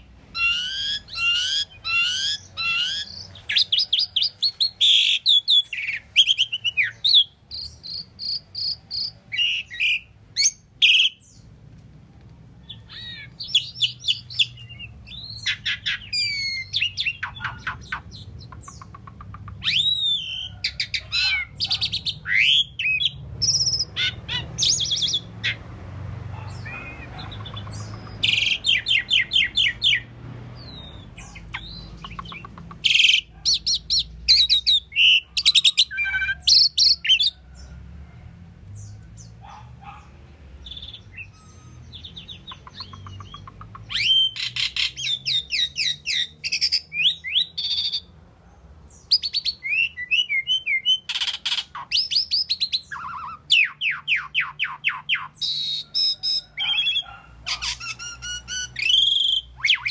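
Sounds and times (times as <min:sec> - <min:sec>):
starling singing: 0:00.0 - 0:11.5, 0:12.6 - 0:37.7, 0:38.8 - 0:48.1, 0:48.9 - 0:59.9.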